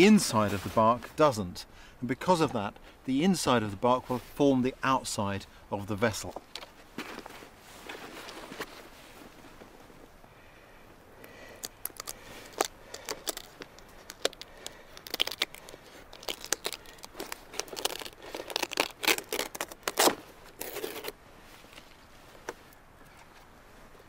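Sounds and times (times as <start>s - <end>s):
bark crackling and tearing: 11.6s - 21.2s.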